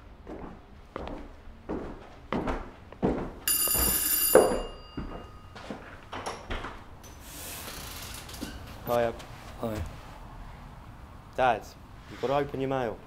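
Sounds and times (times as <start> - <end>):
heavy footsteps: 0.1 - 7.0
doorbell ringing: 3.5 - 6.4.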